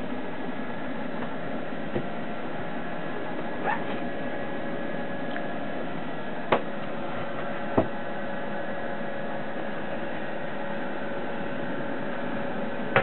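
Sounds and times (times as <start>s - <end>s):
faint constant hum: 0.0s - 13.0s.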